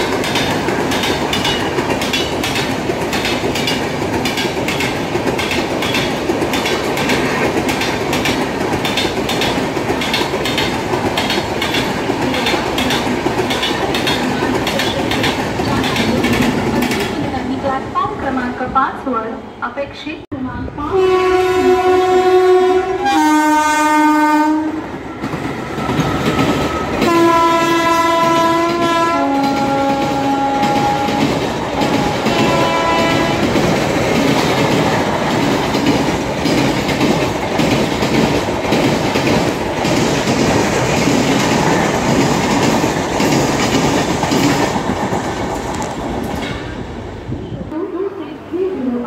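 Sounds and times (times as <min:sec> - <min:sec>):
wheels clacking over rail joints: 0:00.0 - 0:17.5, 0:25.2 - 0:46.8
train rumbling past: 0:00.0 - 0:49.0
train horn blasts: 0:20.8 - 0:24.8, 0:27.0 - 0:33.6.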